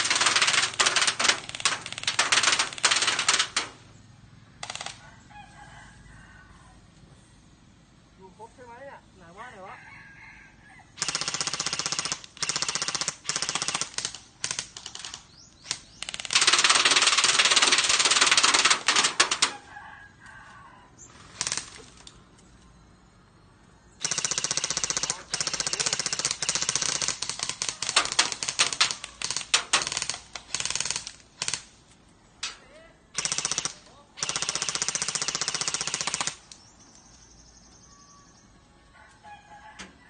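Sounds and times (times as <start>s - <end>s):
airsoft guns firing bursts: 0.0s - 3.8s, 4.6s - 5.0s, 11.0s - 19.5s, 21.1s - 22.0s, 24.0s - 31.9s, 33.2s - 36.5s.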